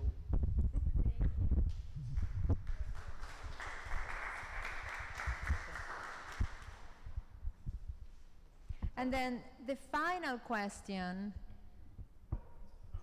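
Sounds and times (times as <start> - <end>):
audience applauding: 2.2 - 7.0.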